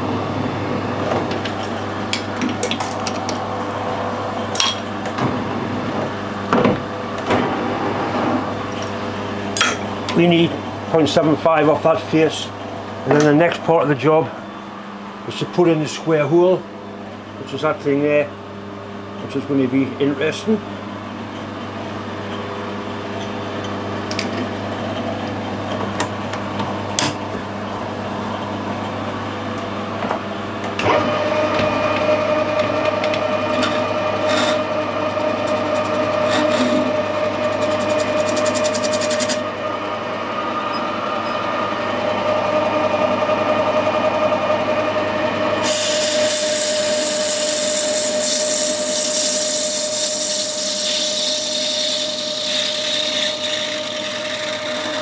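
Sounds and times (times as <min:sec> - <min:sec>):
metal lathe whining: 0:30.8 - 0:44.9, 0:45.6 - 0:55.0
hissing cut of turning tool: 0:45.6 - 0:55.0.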